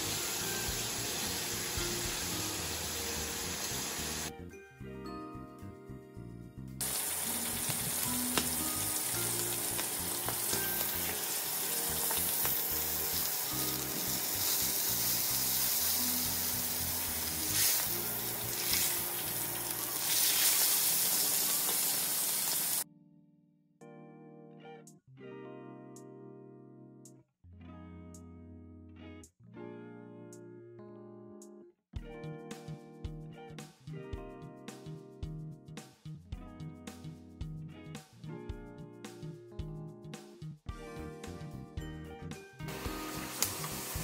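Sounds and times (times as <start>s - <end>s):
meat sizzling in hot oil: 0.0s - 4.3s, 6.8s - 22.8s, 42.7s - 44.0s
background music: 0.0s - 21.3s, 22.8s - 44.0s.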